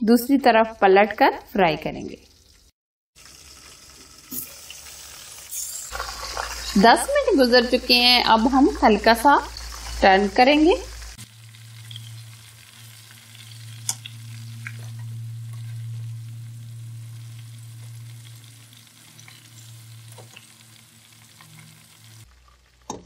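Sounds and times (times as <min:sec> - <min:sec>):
oil bubbling and sizzling: 0:01.8 - 0:23.0
low hum: 0:07.2 - 0:22.4.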